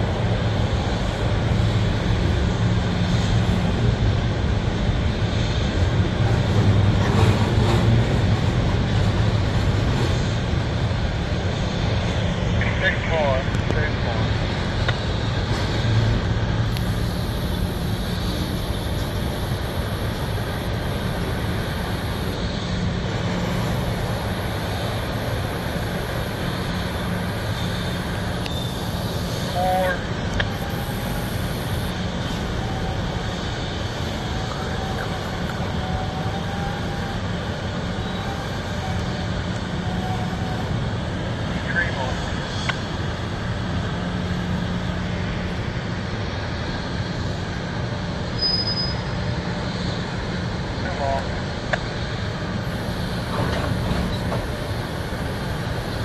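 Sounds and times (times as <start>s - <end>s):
train wheels rumbling on rails: 0.0s - 56.0s
faint wavering squeal: 23.6s - 31.9s, 48.4s - 49.2s.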